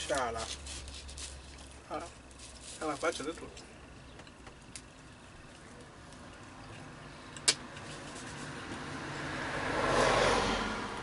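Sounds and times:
car approaching: 3.4s - 11.0s.

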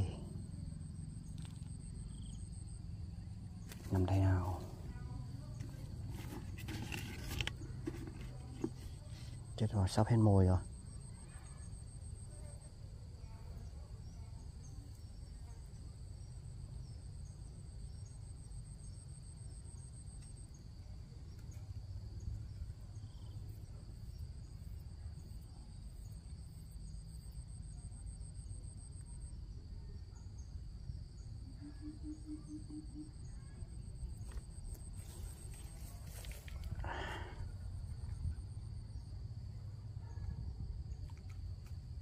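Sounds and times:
faint low rumble: 0.0s - 9.6s, 33.2s - 42.0s
insects buzzing: 0.0s - 29.6s, 30.3s - 42.0s
insect pulsing trill: 0.0s - 42.0s.

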